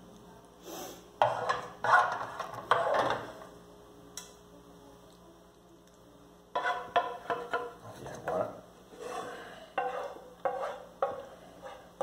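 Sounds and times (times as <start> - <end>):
wooden spoon scraping frying pan: 1.2 - 3.4, 6.5 - 12.0
spoon knocking on pan: 6.6 - 7.8.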